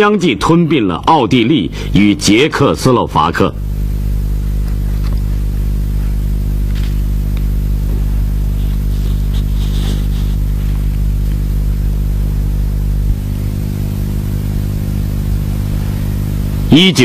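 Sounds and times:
faint scrapes and ticks: 0:08.6 - 0:11.0.

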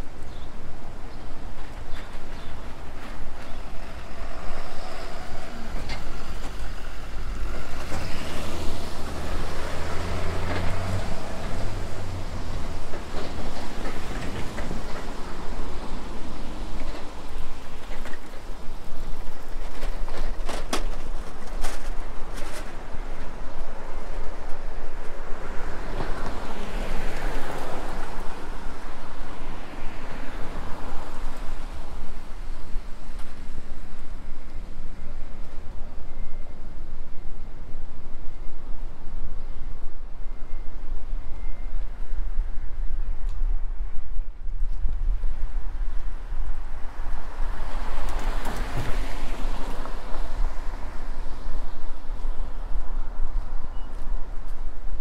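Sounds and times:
street noise: 0:00.0 - 0:55.0
wind buffeting microphone: 0:00.0 - 0:55.0.

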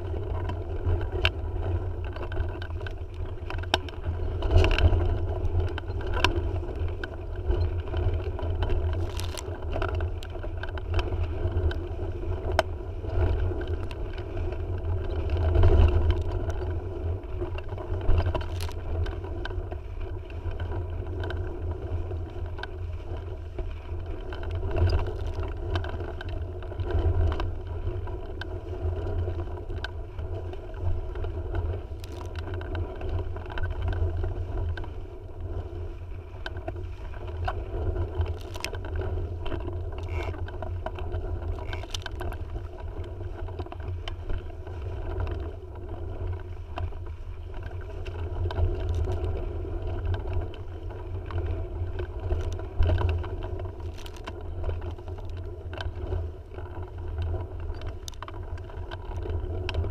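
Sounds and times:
wind buffeting microphone: 0:00.0 - 0:59.9
sharp ticks and knocks: 0:08.4 - 0:11.8, 0:38.2 - 0:42.6.

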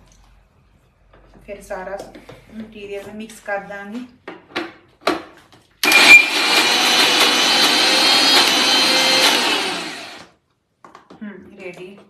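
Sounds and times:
mixer grinder whining: 0:05.8 - 0:10.4.

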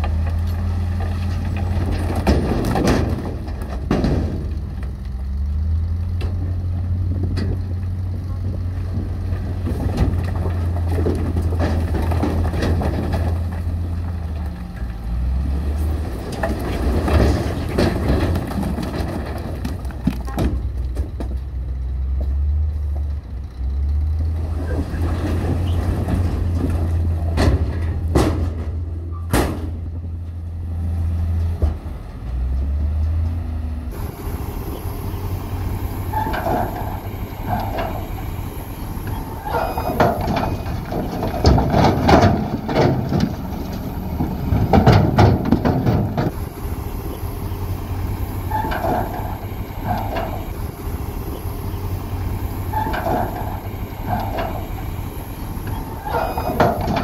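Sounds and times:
construction machinery engine drone: 0:00.0 - 0:57.0
metallic clanking: 0:34.0 - 0:57.0.

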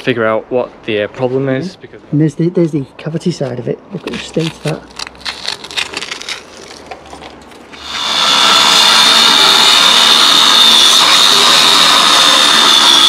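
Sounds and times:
angle grinder cutting steel: 0:07.7 - 0:13.0.

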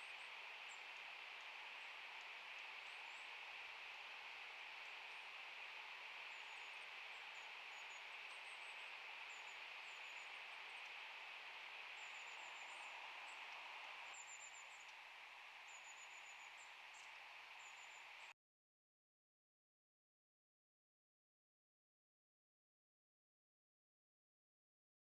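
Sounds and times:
faint background hiss: 0:00.0 - 0:18.3.

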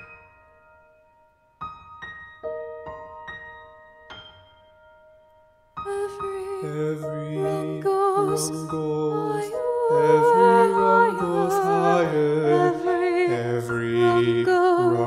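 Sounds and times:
piano accompaniment: 0:00.0 - 0:15.0
soprano singing: 0:05.8 - 0:15.0
tenor singing: 0:05.9 - 0:15.0.

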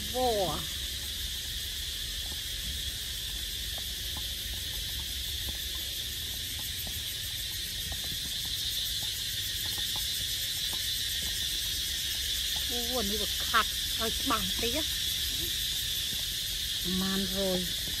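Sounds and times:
insects droning: 0:00.0 - 0:18.0.

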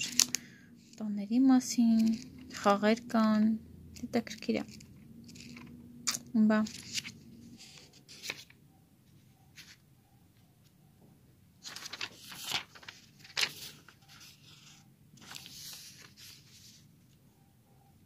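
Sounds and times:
calendar pages rustling: 0:00.0 - 0:00.4, 0:01.6 - 0:02.8, 0:04.0 - 0:09.8, 0:11.6 - 0:16.9.

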